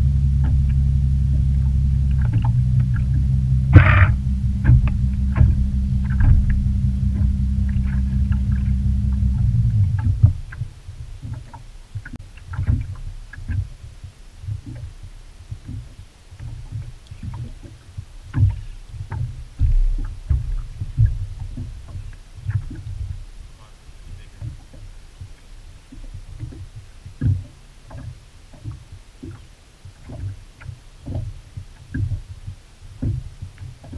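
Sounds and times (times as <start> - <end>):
outboard motor idling: 0.0 - 33.9
light knocks and taps: 30.0 - 33.9.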